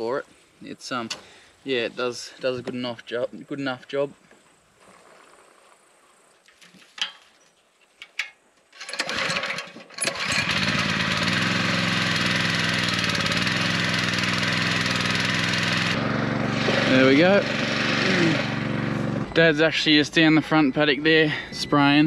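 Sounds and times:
small engine cranking and running: 0:08.8 - 0:19.4.

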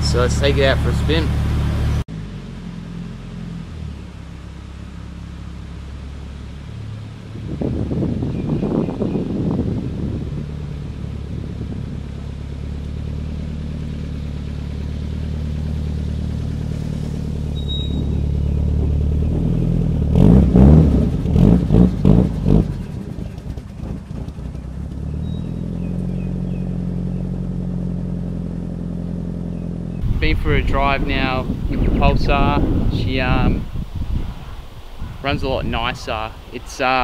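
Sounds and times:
car engine idling: 0:00.0 - 0:37.0
engine revving blips: 0:06.4 - 0:32.9.

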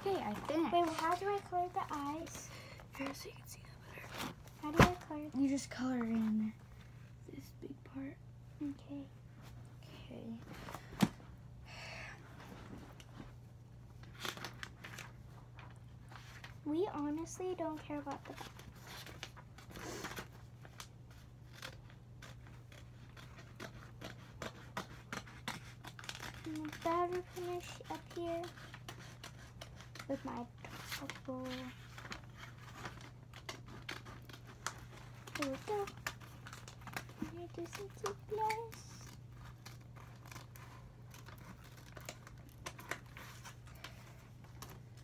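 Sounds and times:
paper rustle: 0:00.0 - 0:06.9, 0:12.4 - 0:45.0
faint low hum: 0:00.0 - 0:45.0
scissors snipping paper: 0:17.0 - 0:44.0.

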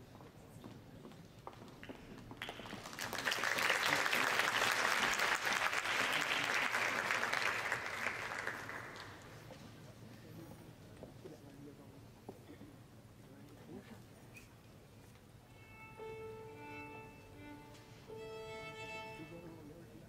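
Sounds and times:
audience applause: 0:02.4 - 0:09.4.

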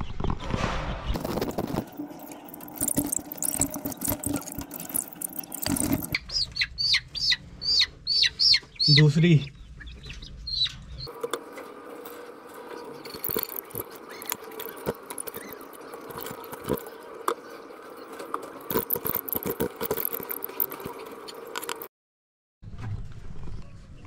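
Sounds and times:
hens scrambling and flapping: 0:01.1 - 0:07.1, 0:09.8 - 0:21.9
steady hum: 0:01.2 - 0:08.4, 0:10.4 - 0:21.9.

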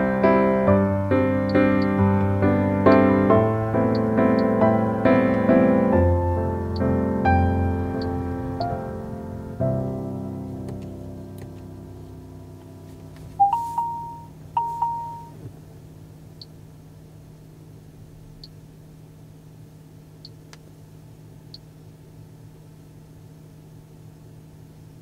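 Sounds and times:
low cabin hum: 0:00.0 - 0:25.0
electronic chime beeps: 0:13.4 - 0:15.4.

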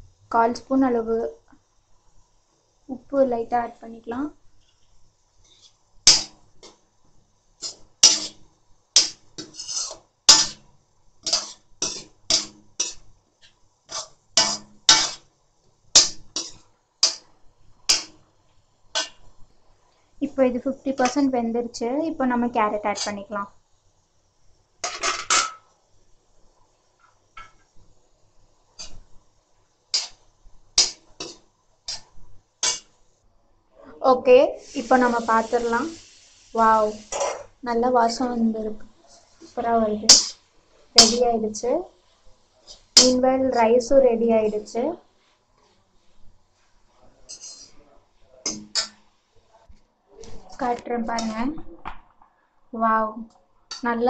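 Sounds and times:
metal spatula scraping wok: 0:05.4 - 0:06.7, 0:07.6 - 0:15.3, 0:15.9 - 0:18.1, 0:19.0 - 0:19.3, 0:22.9 - 0:23.2, 0:28.8 - 0:29.1, 0:29.9 - 0:33.0, 0:34.5 - 0:37.6, 0:38.2 - 0:41.7, 0:42.6 - 0:43.2, 0:47.2 - 0:47.8, 0:48.4 - 0:49.0, 0:50.5 - 0:51.4.

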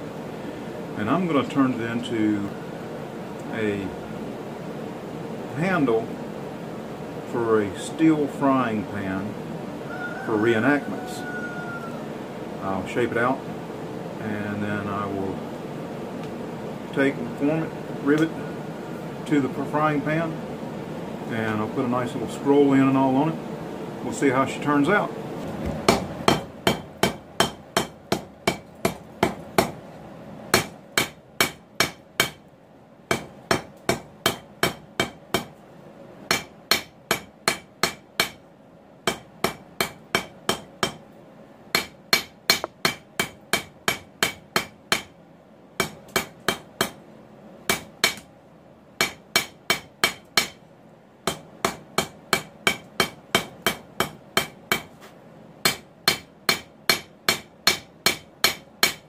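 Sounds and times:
hammer striking hot steel on anvil: 0:25.9 - 0:29.8, 0:30.5 - 0:32.4, 0:33.1 - 0:35.6, 0:36.3 - 0:38.4, 0:39.1 - 0:41.0, 0:41.7 - 0:45.2, 0:45.8 - 0:47.0, 0:47.7 - 0:48.3, 0:49.0 - 0:50.6, 0:51.3 - 0:54.9, 0:55.6 - 0:59.0.

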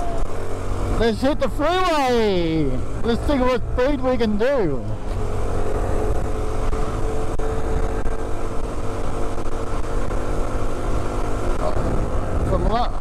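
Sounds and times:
motorcycle engine running: 0:00.0 - 0:13.0
wind rumble on microphone: 0:04.9 - 0:13.0.

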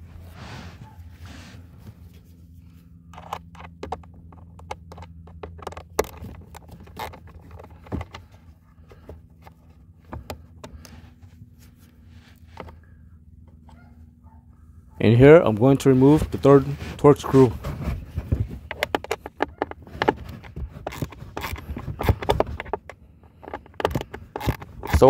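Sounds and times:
steady low hum: 0:00.0 - 0:25.0
ratchet metallic clicks and clatter: 0:18.6 - 0:25.0.

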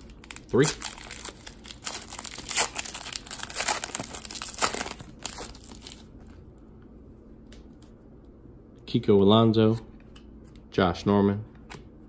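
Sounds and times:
wrapper crackling and tearing: 0:00.0 - 0:06.1.

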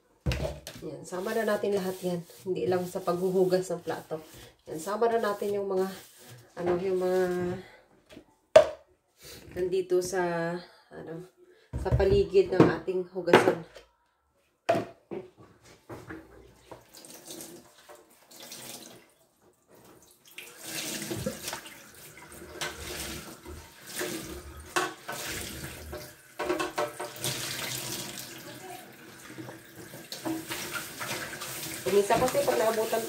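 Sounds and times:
tap water splashing into sink: 0:19.7 - 0:28.4, 0:29.1 - 0:33.0.

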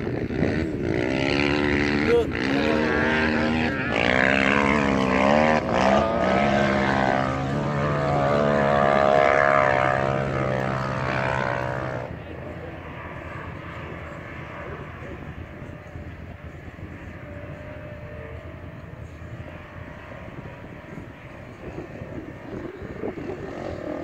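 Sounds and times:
engine revving hard: 0:00.2 - 0:12.1.

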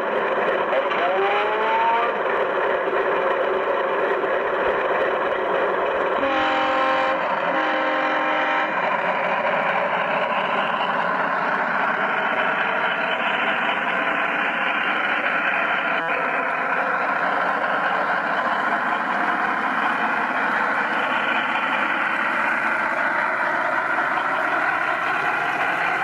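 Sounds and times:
diesel engine drone: 0:00.0 - 0:26.0
locomotive horn blasts: 0:06.2 - 0:08.8.

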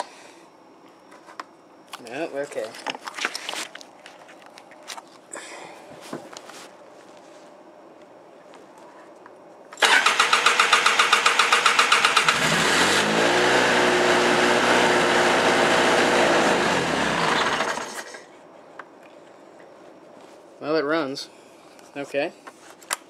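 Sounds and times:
electric starter cranking: 0:09.8 - 0:18.1.

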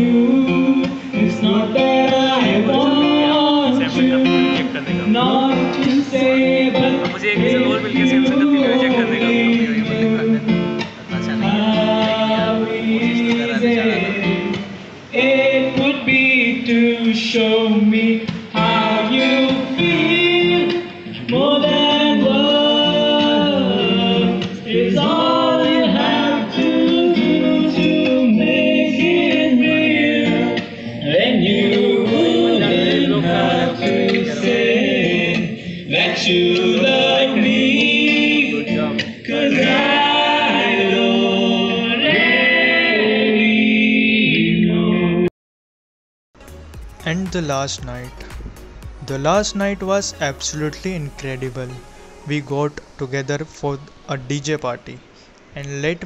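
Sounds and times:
person singing: 0:00.0 - 0:43.5, 0:46.5 - 0:53.8
acoustic guitar: 0:00.0 - 0:45.3, 0:46.4 - 0:56.0.

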